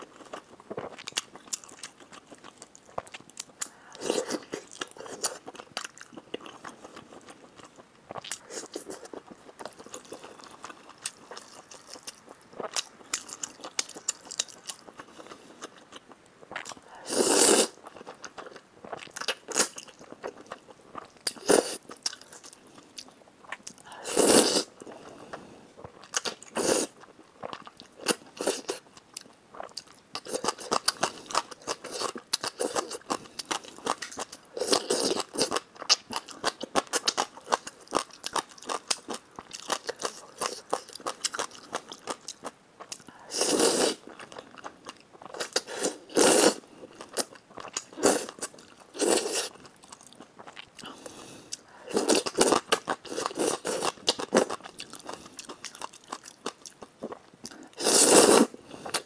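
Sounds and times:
loud noodle slurps: 17.1s - 17.8s, 24.0s - 24.7s, 43.3s - 44.0s, 45.7s - 46.6s, 57.8s - 58.6s
wet chewing and mouth clicks: 25.8s - 59.0s.

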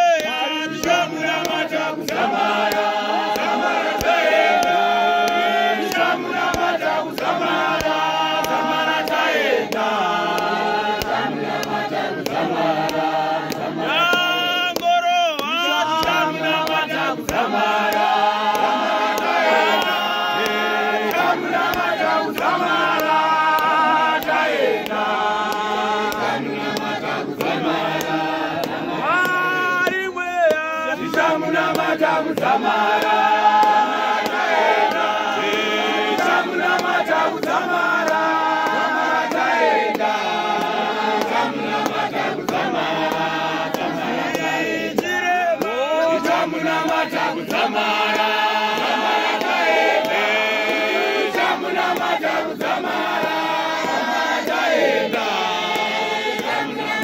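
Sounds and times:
congregation singing a hymn: 0.0s - 57.0s.

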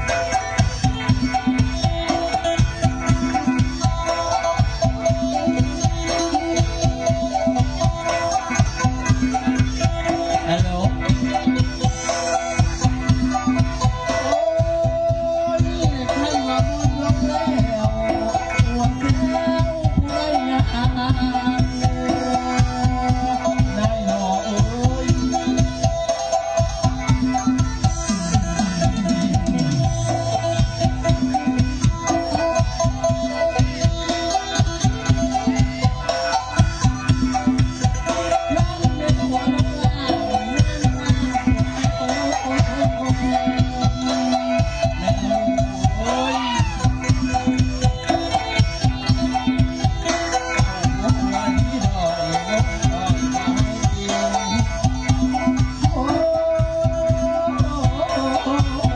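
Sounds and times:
folk dance music over loudspeakers: 0.0s - 58.9s
steady drum beat: 0.0s - 58.9s
sustained melody line: 0.0s - 58.9s.

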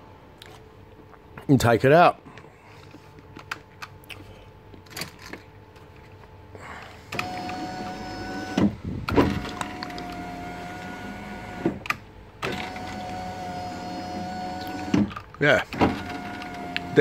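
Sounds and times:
power window motor whine: 7.0s - 17.0s
window motor stopping click: 7.1s - 15.1s.

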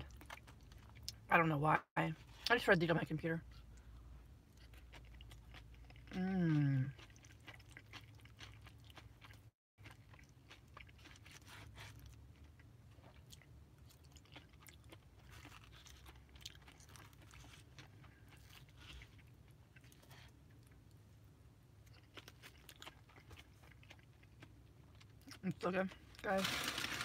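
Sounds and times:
chewing with mouth clicks: 3.5s - 21.0s, 21.8s - 25.5s.

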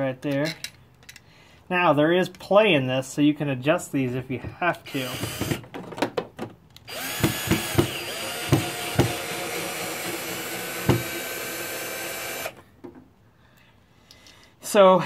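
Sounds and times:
drill clicking: 4.9s - 5.6s, 6.8s - 12.6s
drill motor whining: 4.9s - 5.6s, 6.9s - 12.6s.

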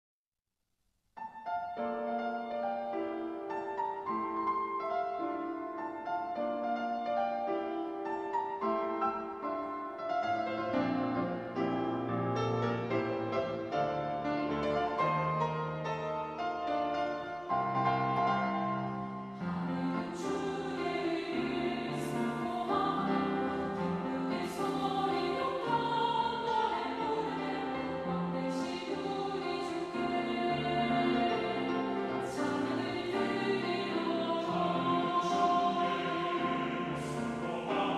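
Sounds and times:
piano playing rhythmic melody: 1.2s - 37.9s
choir singing in unison: 19.4s - 37.9s.

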